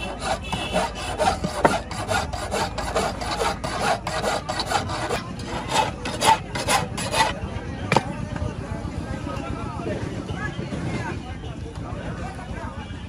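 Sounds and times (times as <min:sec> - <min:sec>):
file scraping metal: 0:00.0 - 0:08.0.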